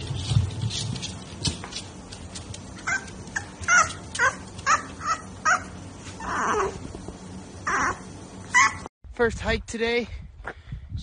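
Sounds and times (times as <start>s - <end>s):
puppy yapping: 2.8s - 6.8s, 7.6s - 8.9s.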